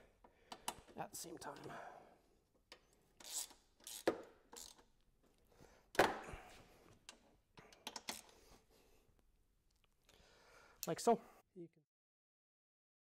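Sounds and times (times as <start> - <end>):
ratchet wrench clicks: 3.2 - 4.9.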